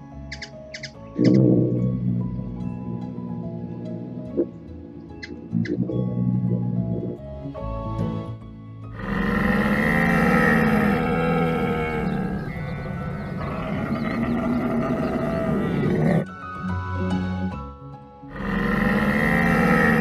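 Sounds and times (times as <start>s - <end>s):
background music: 0.0s - 20.0s
camel bellowing: 1.2s - 7.2s, 8.9s - 16.3s, 18.3s - 20.0s.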